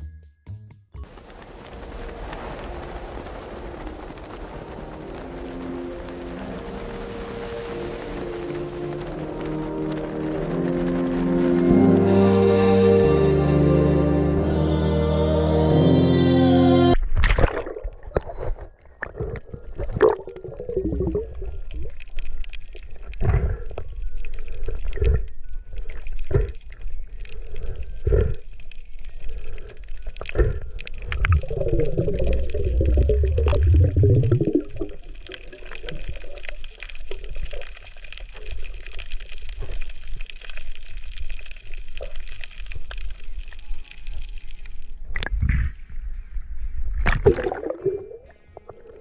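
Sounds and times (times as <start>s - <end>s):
water sloshing and gurgling: 17.0s - 45.9s, 46.9s - 49.0s.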